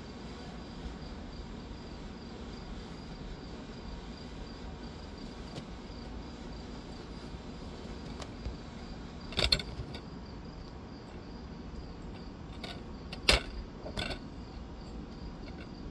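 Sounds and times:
crickets chirping: 0:00.0 - 0:15.9.

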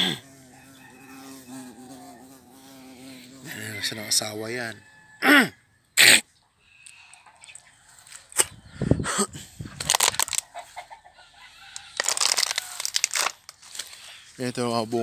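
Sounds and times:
rustling and crackling leaves: 0:09.8 - 0:10.8, 0:11.8 - 0:15.0.

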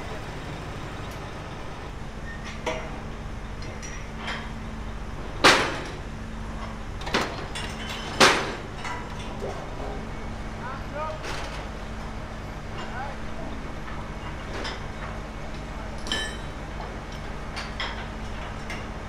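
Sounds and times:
metal clangs and knocks: 0:07.0 - 0:10.0, 0:16.0 - 0:16.6.

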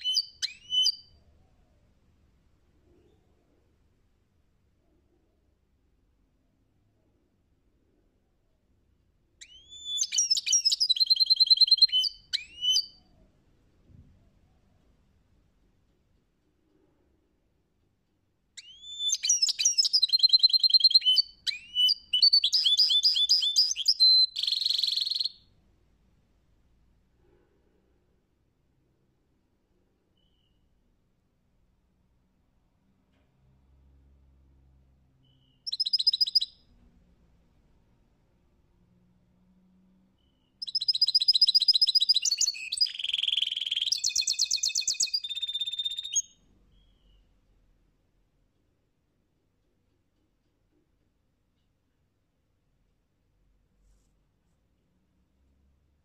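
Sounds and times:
bird twittering and trilling: 0:00.0 - 0:01.2, 0:09.4 - 0:13.1, 0:18.6 - 0:25.4, 0:35.2 - 0:36.6, 0:40.2 - 0:47.3.

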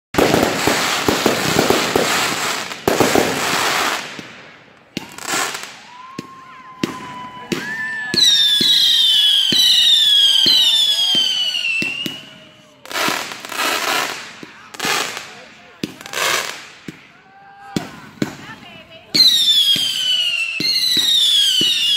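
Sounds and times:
firework bangs: 0:00.2 - 0:21.9
fireworks crackling: 0:00.2 - 0:21.9
firework whistles: 0:05.0 - 0:14.2, 0:19.1 - 0:21.9.

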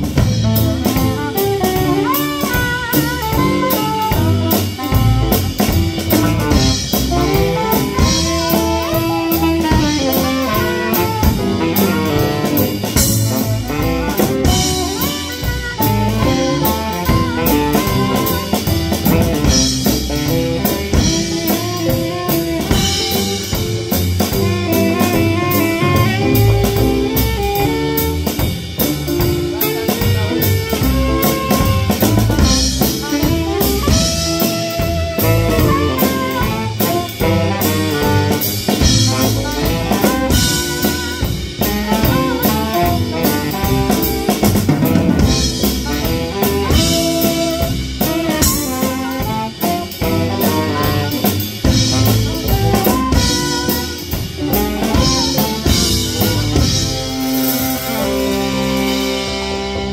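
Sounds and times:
drum kit: 0:00.0 - 0:59.9
electric keyboard: 0:00.0 - 0:59.9
upright bass: 0:00.0 - 0:59.9
saxophones: 0:00.5 - 0:59.9.

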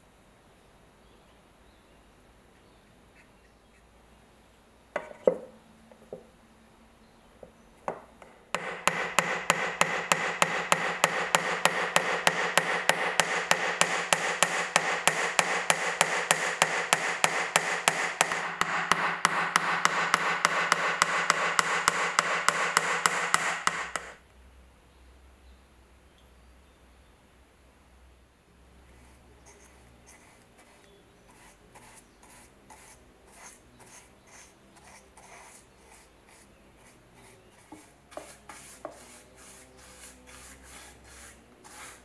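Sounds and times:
hammer striking nails into wood: 0:07.9 - 0:24.2.

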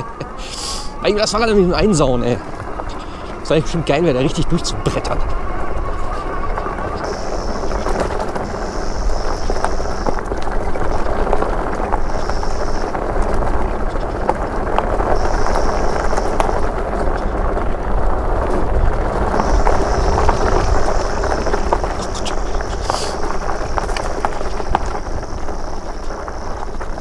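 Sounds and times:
high motor whine: 0:00.0 - 0:27.0
wind buffeting microphone: 0:00.0 - 0:27.0
tyre rumble: 0:04.8 - 0:27.0.

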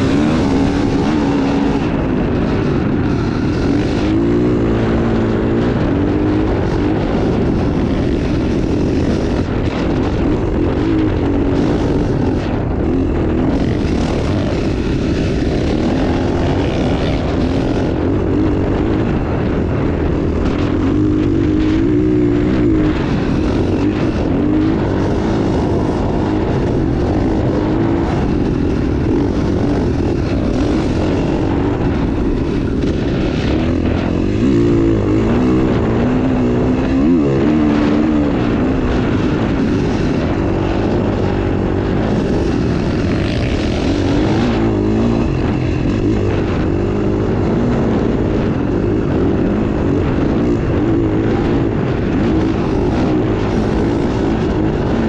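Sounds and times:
dirt bike engine running hard: 0:00.0 - 0:55.0.

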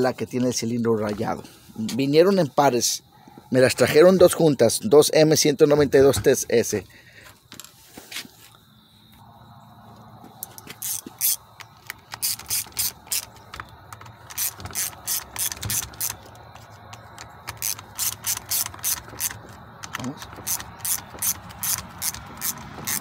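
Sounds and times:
ratchet clicks: 0:10.4 - 0:23.0.

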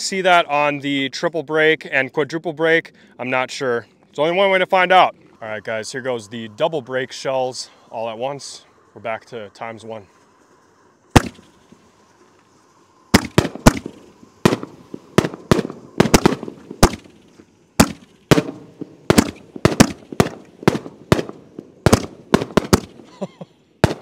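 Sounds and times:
shells bursting in sky: 0:10.1 - 0:24.0
mortar launch bang: 0:11.1 - 0:11.7, 0:13.1 - 0:23.1.

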